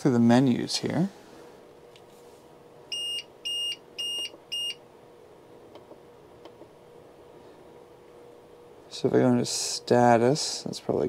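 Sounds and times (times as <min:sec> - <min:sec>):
short high-pitched alarm beeps: 0:02.9 - 0:04.8.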